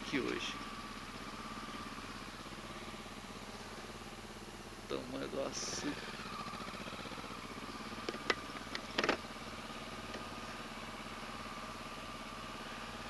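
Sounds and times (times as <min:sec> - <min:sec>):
motorcycle engine idling: 0:00.0 - 0:13.0.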